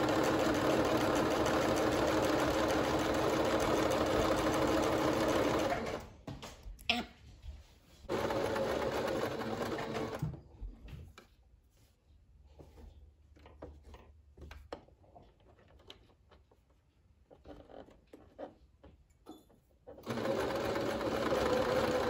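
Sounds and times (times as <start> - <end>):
sewing machine stitching: 0.0 - 6.1, 8.1 - 10.3, 19.9 - 22.0.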